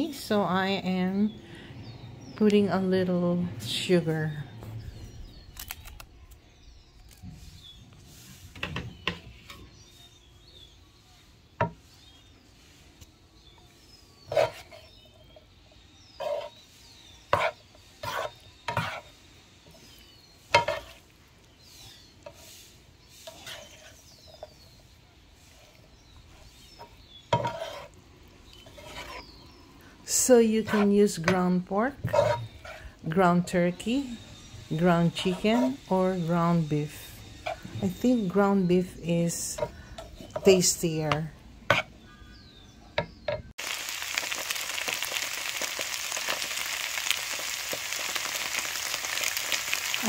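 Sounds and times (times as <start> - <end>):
spatula scraping a pan: 14.2 - 15.5, 16.1 - 33.8, 34.7 - 42.0
faint sizzle: 43.6 - 50.0.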